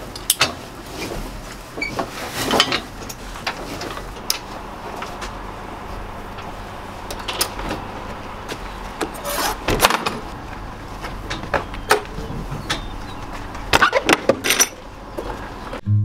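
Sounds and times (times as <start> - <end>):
metal latches and chains clanking: 13.7 - 14.8
low steady hum: 14.6 - 16.0.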